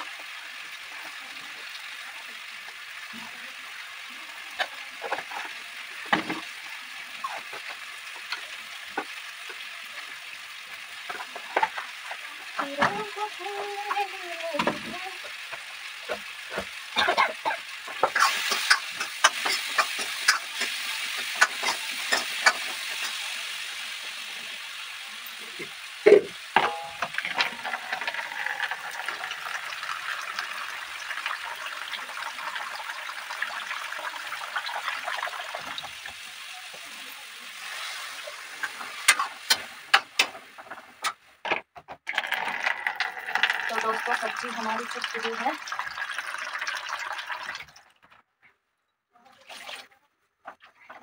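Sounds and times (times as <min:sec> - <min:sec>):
vegetables sizzling in a pan: 0:00.0 - 0:41.4, 0:42.1 - 0:47.5
spoon knocking and scraping pan: 0:14.6 - 0:23.2, 0:25.6 - 0:28.6, 0:38.6 - 0:42.0.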